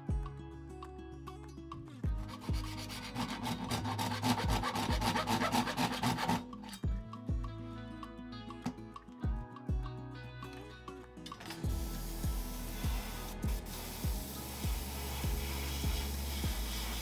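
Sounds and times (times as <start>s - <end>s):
background music: 0.0s - 17.0s
hacksaw cutting plastic: 2.2s - 6.8s.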